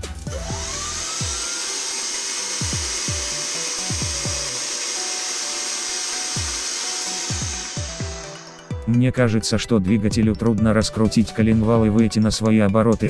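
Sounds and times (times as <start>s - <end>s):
electric motor whirring: 0.3s - 9.1s.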